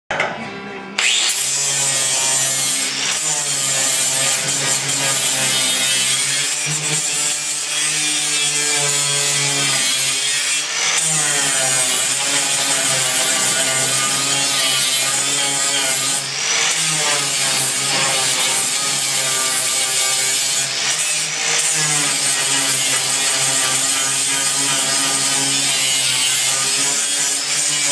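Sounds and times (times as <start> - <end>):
angle grinder grinding steel: 1.0 - 27.9.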